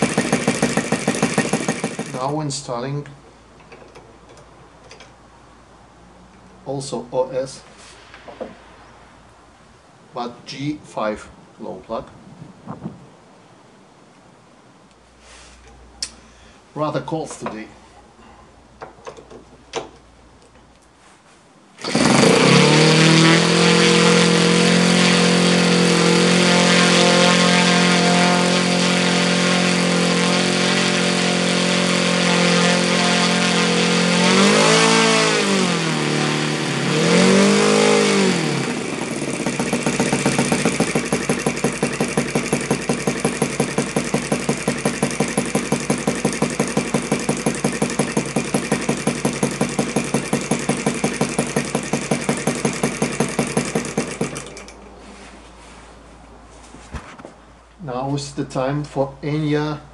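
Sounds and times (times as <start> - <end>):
model engine running: 0.0 - 2.3, 21.8 - 54.8.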